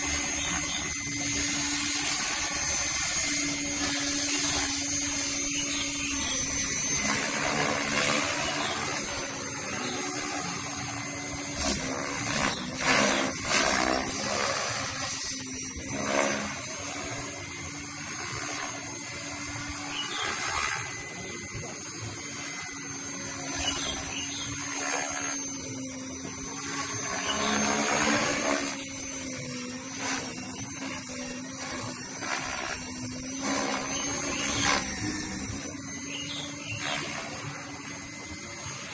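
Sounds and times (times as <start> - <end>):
model helicopter rotor whine: 0.0 - 38.9.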